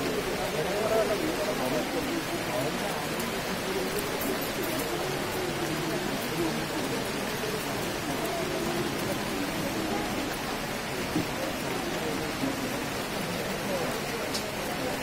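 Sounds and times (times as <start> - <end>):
faint voices murmuring: 0.0 - 15.0
steady rain: 0.0 - 15.0.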